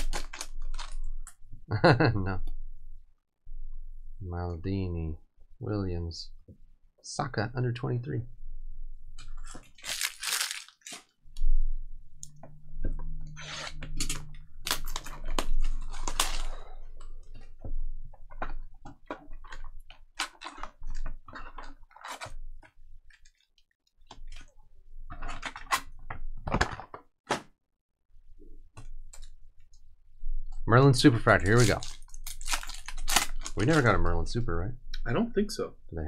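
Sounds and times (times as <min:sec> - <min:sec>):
foil packs crinkling: 0:00.0 - 0:01.1, 0:09.4 - 0:11.1, 0:14.0 - 0:16.8, 0:31.2 - 0:34.0.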